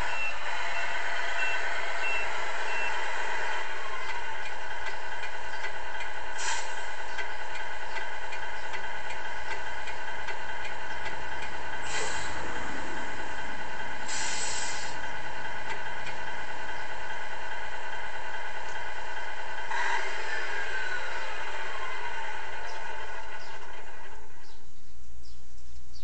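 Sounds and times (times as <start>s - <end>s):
simulated engine idling from speaker: 0.0s - 26.0s
air-brake hisses: 6.4s - 6.9s, 11.8s - 12.9s, 14.0s - 15.0s.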